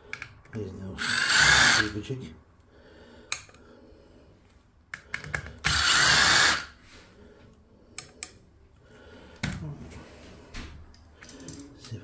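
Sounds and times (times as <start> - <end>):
cordless drill spinning: 1.0 - 2.0, 5.6 - 6.8.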